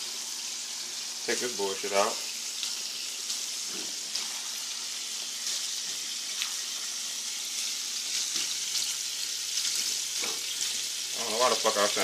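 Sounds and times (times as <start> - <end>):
shrimp sizzling in a skillet: 0.0 - 12.0.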